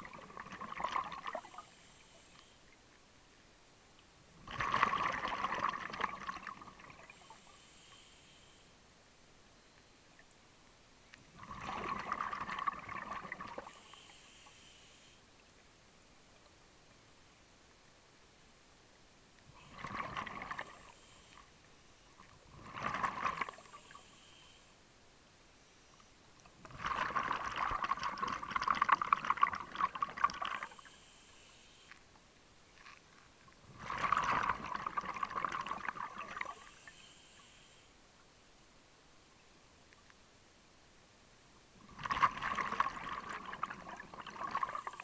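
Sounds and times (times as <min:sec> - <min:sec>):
underwater regulator bubbling: 0:00.0 - 0:01.6, 0:04.5 - 0:07.3, 0:11.4 - 0:13.8, 0:19.6 - 0:20.9, 0:22.5 - 0:23.9, 0:26.6 - 0:30.8, 0:33.7 - 0:36.7, 0:41.9 - 0:45.0
regulator hiss on inhale: 0:01.3 - 0:02.8, 0:07.0 - 0:08.8, 0:13.6 - 0:15.4, 0:20.6 - 0:22.0, 0:23.4 - 0:24.9, 0:30.4 - 0:32.1, 0:36.4 - 0:38.0.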